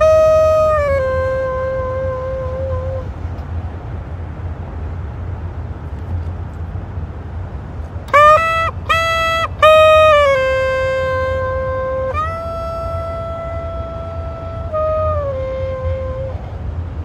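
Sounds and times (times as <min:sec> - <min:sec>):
low clarinet notes: 0:00.0 - 0:03.4, 0:08.1 - 0:16.6
low outdoor rumble: 0:00.0 - 0:17.0.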